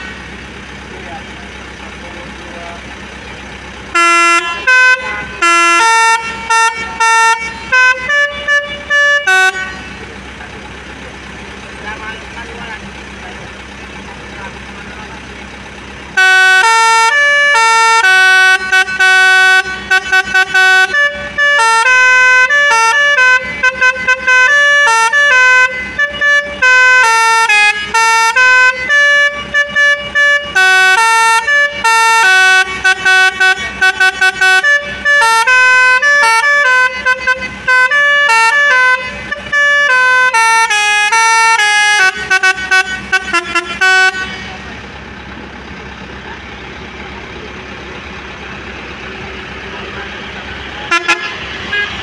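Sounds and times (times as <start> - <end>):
horn playing a fast tune: 3.9 - 10.1, 16.1 - 44.7, 50.7 - 52.0.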